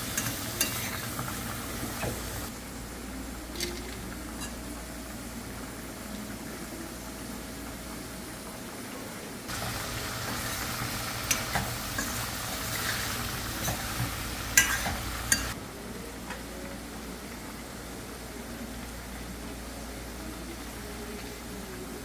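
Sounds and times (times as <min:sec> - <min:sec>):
food sizzling in a pot: 0:00.0 - 0:02.6, 0:09.5 - 0:15.6
metal spoon clinking against pot: 0:14.6 - 0:15.6.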